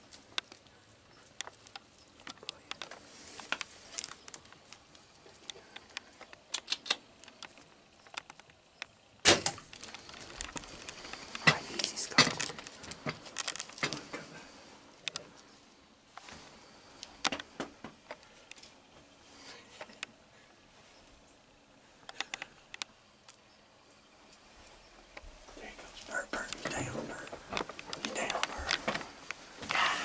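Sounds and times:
small handling clicks and knocks: 0:00.0 - 0:14.4, 0:15.0 - 0:15.5, 0:17.0 - 0:20.2, 0:22.0 - 0:23.5, 0:25.0 - 0:29.8
rustling: 0:00.0 - 0:23.5.

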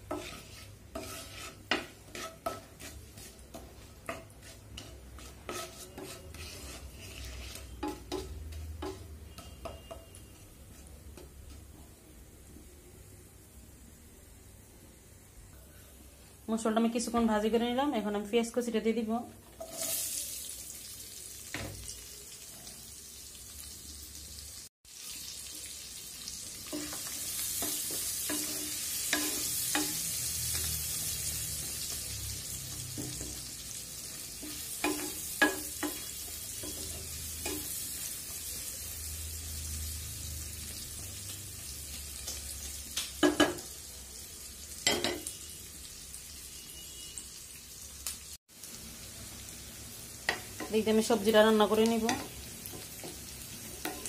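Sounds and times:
onions sizzling in hot oil: 0:00.0 - 0:54.0
wooden spatula knocking on pan: 0:07.8 - 0:10.1.

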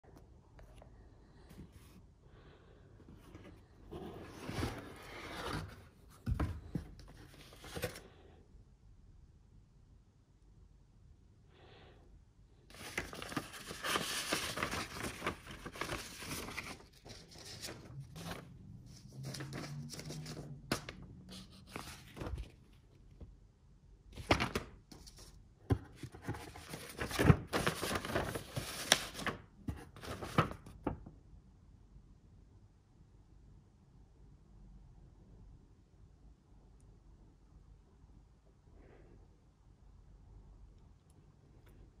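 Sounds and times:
paper rustling and crinkling: 0:03.3 - 0:08.1, 0:12.7 - 0:22.8, 0:24.2 - 0:31.0.

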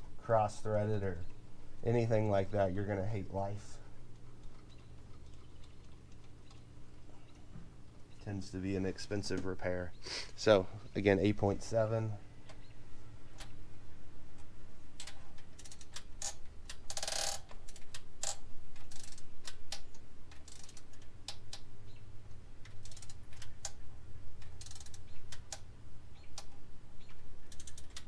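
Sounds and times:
low steady hum: 0:00.0 - 0:28.0
ratchet wrench clicking: 0:15.0 - 0:21.6, 0:22.6 - 0:23.8, 0:24.4 - 0:25.6, 0:27.5 - 0:28.0.

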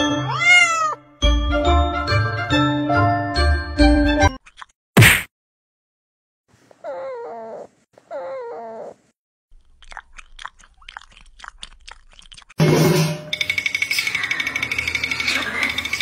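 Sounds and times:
cat wavering calls: 0:06.8 - 0:09.1
cat crunching dry food: 0:09.6 - 0:12.6.

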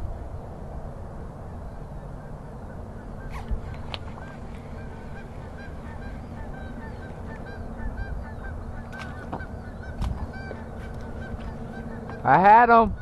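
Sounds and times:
honk-like animal calls: 0:03.2 - 0:13.0.

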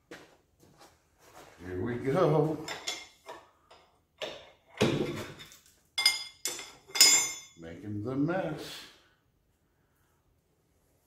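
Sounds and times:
metal tools and parts clinking: 0:02.6 - 0:07.6.

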